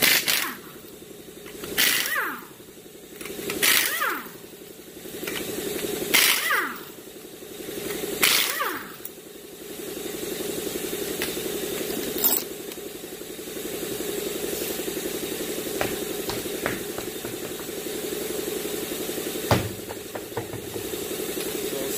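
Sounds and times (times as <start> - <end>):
impact wrench rattling bursts: 0.0 - 10.3, 14.7 - 21.6
steady machine hum: 0.0 - 21.9.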